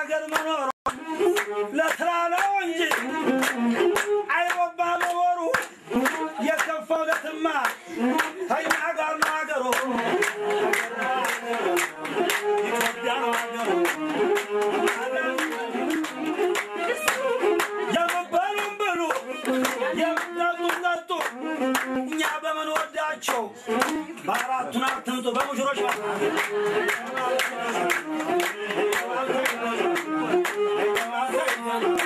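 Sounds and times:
people clapping a steady beat: 0.0s - 32.0s
sung melody: 9.8s - 20.7s.

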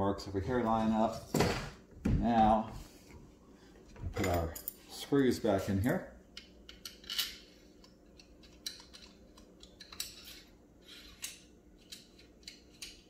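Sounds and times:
metal bolts clinking and scraping: 4.1s - 4.9s, 6.7s - 7.6s.

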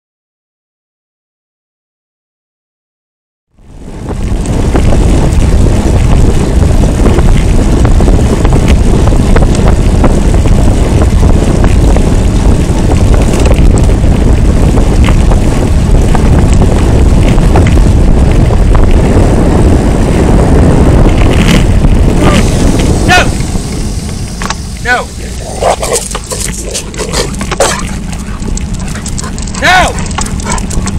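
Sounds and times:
wind buffeting microphone: 3.6s - 30.9s
dogs yelping barks: 25.4s - 30.9s.

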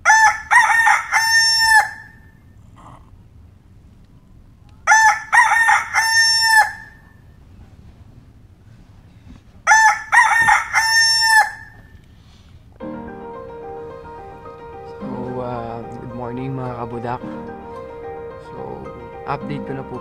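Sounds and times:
rooster crowing: 0.0s - 2.2s, 4.8s - 7.0s, 9.6s - 11.8s.

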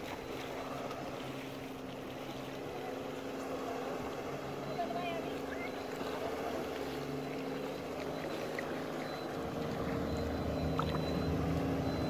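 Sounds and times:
engine droning: 0.0s - 12.0s.

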